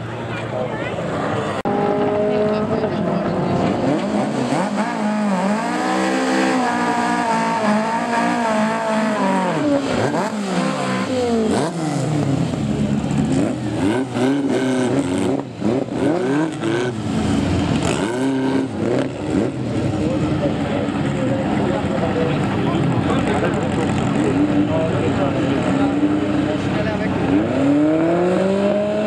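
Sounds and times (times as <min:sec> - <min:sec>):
drag car engines revving: 0:00.0 - 0:29.0
cars accelerating through gears: 0:01.2 - 0:29.0.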